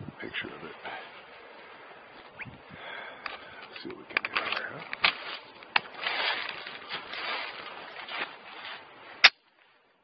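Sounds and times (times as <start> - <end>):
rustling: 3.2 - 9.9.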